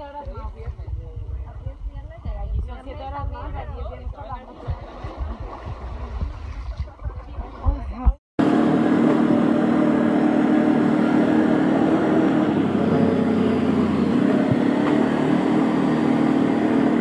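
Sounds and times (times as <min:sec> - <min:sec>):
atv engine running: 0:08.4 - 0:17.0.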